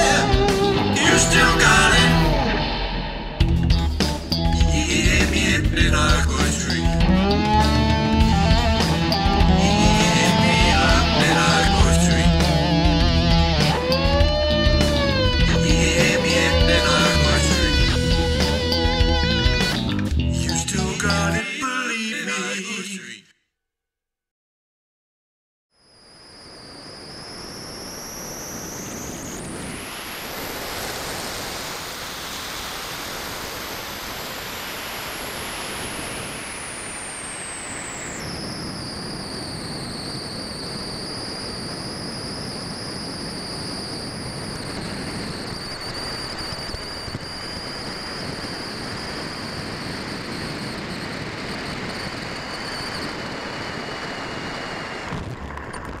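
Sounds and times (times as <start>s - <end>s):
high whistle: 37.1s - 53.3s.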